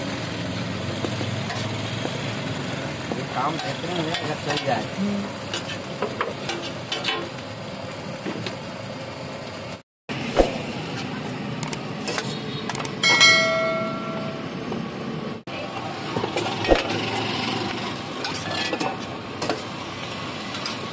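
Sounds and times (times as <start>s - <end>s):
steady background noise: 0.0s - 20.9s
clatter of metal tins and utensils: 3.2s - 4.9s, 5.5s - 7.3s, 18.2s - 19.7s
metallic ring: 13.0s - 14.6s.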